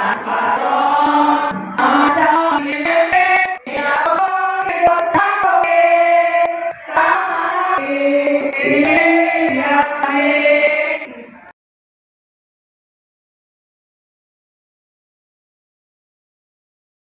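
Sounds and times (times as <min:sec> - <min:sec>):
group singing a slow hymn: 0:00.0 - 0:11.5.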